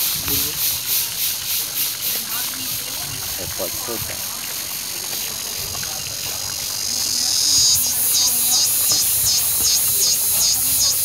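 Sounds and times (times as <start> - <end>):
high-pitched insect buzzing: 6.1 - 11.0.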